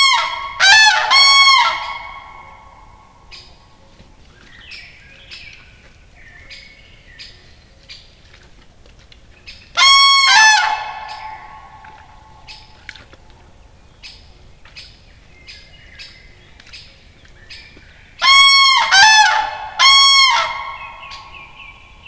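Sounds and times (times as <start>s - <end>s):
cranes trumpeting: 0.0s - 3.4s, 9.8s - 13.0s, 18.2s - 22.0s.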